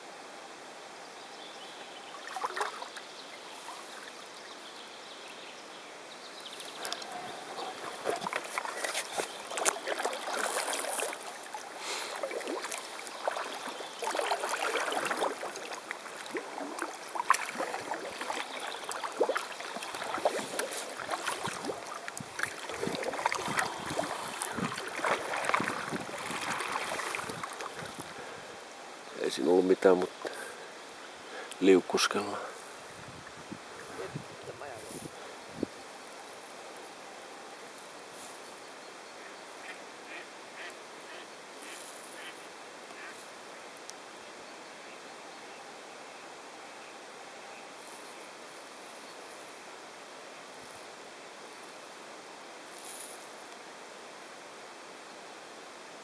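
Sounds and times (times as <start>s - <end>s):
kayak paddle splashing water: 2.2s - 3.1s, 6.6s - 28.5s
water dripping off paddle: 6.7s - 28.3s.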